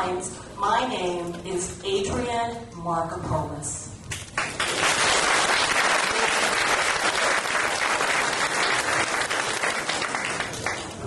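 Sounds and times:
audience applause: 4.4s - 11.0s.

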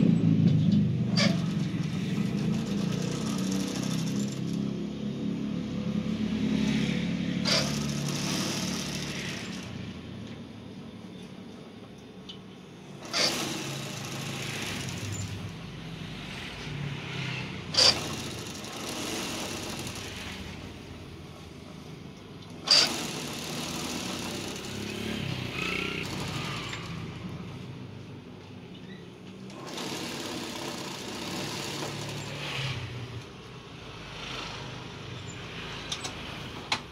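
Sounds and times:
sewing machine motor running: 1.2s - 4.8s, 7.4s - 9.9s, 13.0s - 15.7s, 17.0s - 20.9s, 22.6s - 27.3s, 29.5s - 33.3s.

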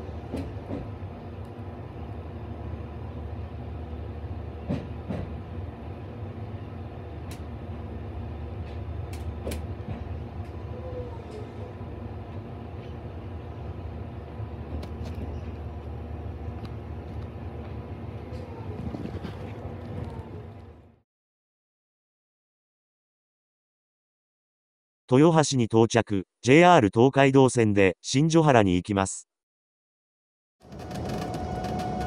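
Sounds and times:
train wheels rumbling: 0.0s - 20.9s, 30.6s - 32.0s
wheels clicking on rails: 30.6s - 32.0s.

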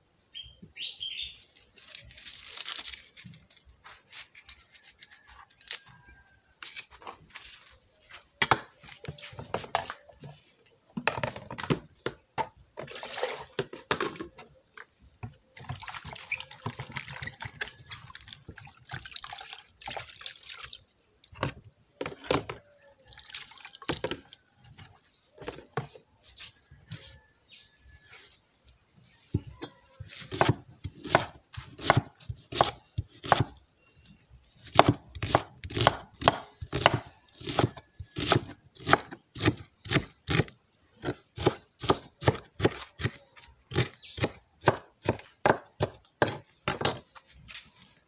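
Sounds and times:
water splashing and dripping: 15.6s - 21.5s, 23.0s - 24.4s.

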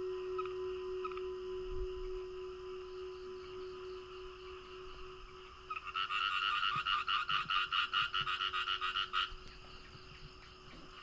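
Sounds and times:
frog calling in pulsed trill: 0.0s - 10.0s.

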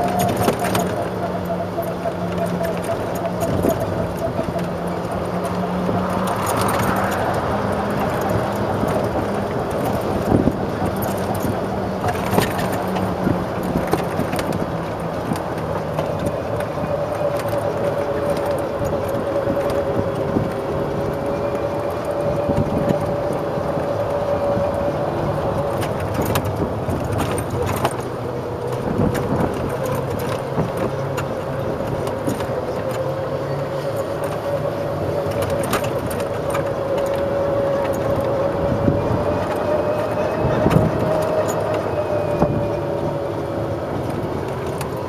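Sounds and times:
cart rattles and knocks: 0.0s - 45.0s
golf cart whining: 0.0s - 45.0s.

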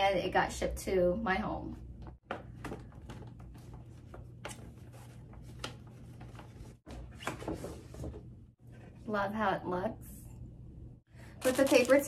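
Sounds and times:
paper bag rustling and crinkling: 11.4s - 12.0s.

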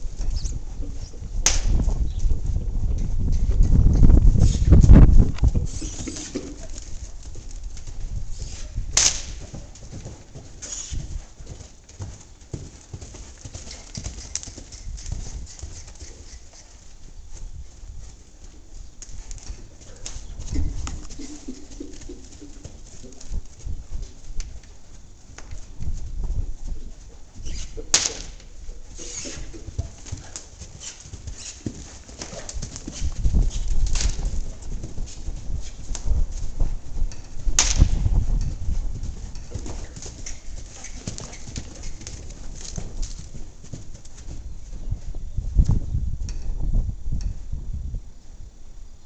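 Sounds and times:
horse hooves thudding on sand: 0.0s - 47.5s
hoofbeats on soft dirt: 0.0s - 47.9s
sharp crack: 1.4s - 1.8s, 8.9s - 9.5s, 27.9s - 28.5s, 37.6s - 38.1s.

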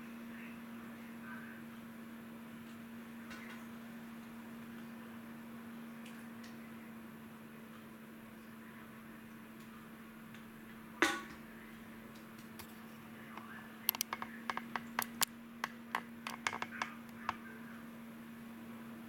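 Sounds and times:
hard objects clicking and clinking: 13.4s - 17.4s.

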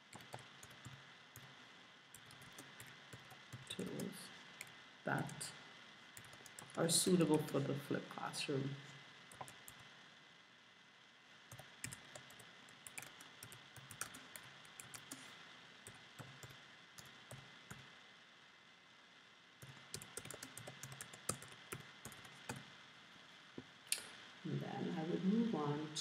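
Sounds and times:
faint keyboard typing: 0.0s - 5.6s, 6.2s - 7.5s, 9.3s - 10.0s, 11.5s - 17.9s, 19.6s - 22.7s.

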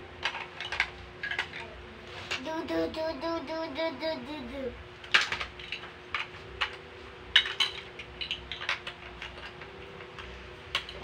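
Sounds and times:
plastic bricks clicking: 0.2s - 1.7s, 5.0s - 11.0s.

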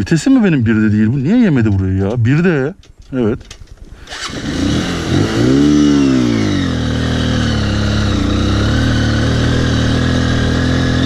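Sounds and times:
motorcycle engine revving and idling: 4.1s - 11.0s.

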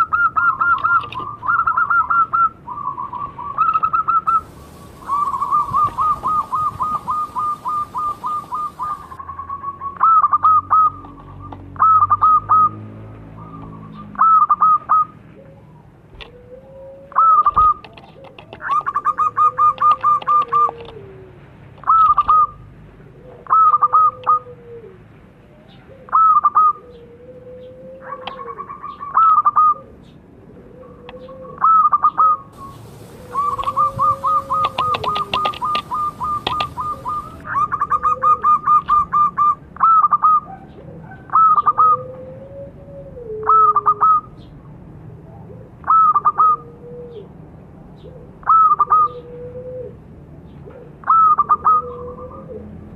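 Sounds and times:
dove cooing: 0.0s - 12.8s, 13.4s - 22.6s, 23.2s - 44.4s, 45.1s - 47.4s, 48.0s - 50.0s, 50.6s - 52.9s
drawn-out low coo: 0.0s - 44.4s, 45.0s - 52.9s.

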